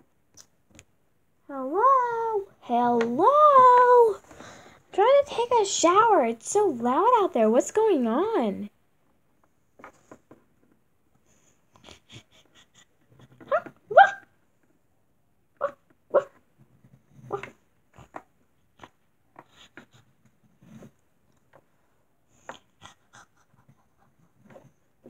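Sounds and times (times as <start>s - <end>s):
person imitating dog yaps: 13.4s - 14.3s.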